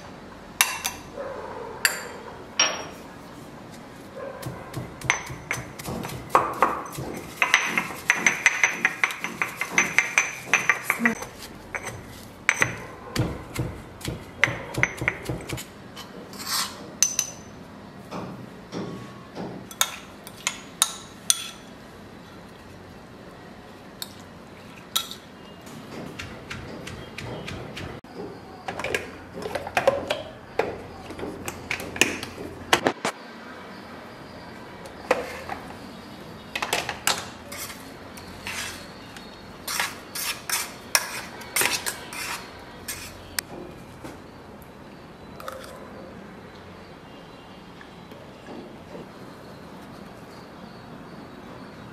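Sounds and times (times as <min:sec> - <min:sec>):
kitchenware clinking and knocking: 0:04.7 - 0:15.6
metal spoon scraping steel jar: 0:37.5 - 0:39.0, 0:39.6 - 0:43.3.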